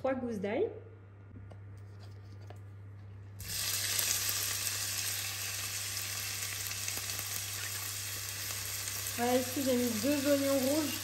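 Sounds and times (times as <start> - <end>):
onion sizzling in hot oil: 3.4 - 11.0.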